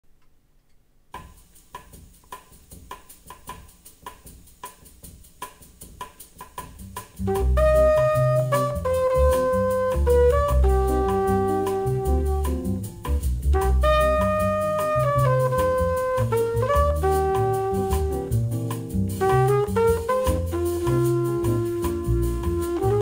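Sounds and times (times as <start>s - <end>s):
bass and horns: 6.6s - 23.0s.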